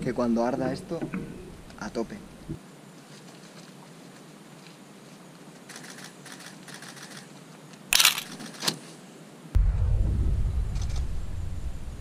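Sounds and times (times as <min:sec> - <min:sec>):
camera shutter clicks: 0:05.7 - 0:07.3, 0:07.9 - 0:08.8.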